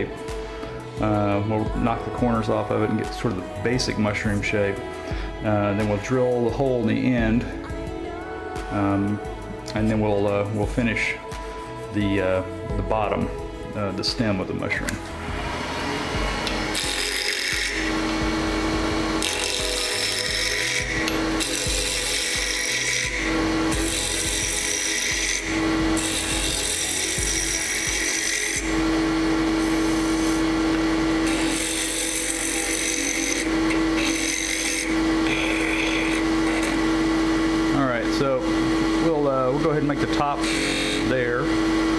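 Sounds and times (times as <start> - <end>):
wood lathe humming: 0.0 - 41.9
gouge scraping spinning wood: 13.8 - 41.9.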